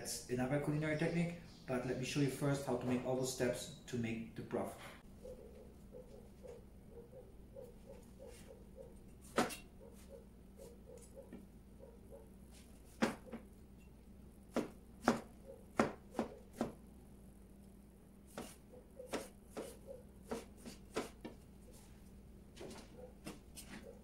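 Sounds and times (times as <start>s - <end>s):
knife chopping on cutting board: 9.2s - 9.6s, 12.9s - 13.4s, 14.5s - 16.8s, 18.3s - 21.4s.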